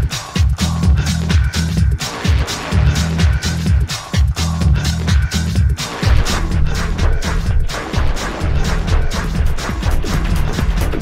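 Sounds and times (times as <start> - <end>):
electronic dance music: 0.0 - 11.0.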